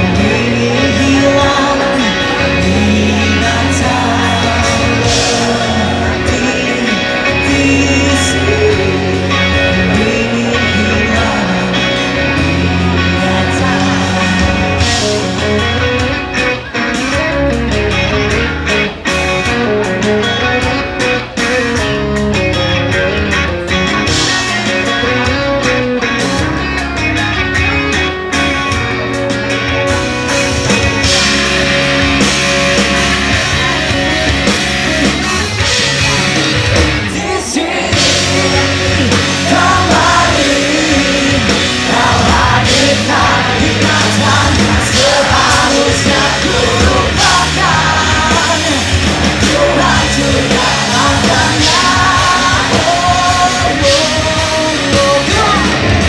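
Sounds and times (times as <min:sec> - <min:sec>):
person singing: 0:00.0 - 0:15.8, 0:36.1 - 0:56.0
loud rock band playing: 0:00.0 - 0:56.0.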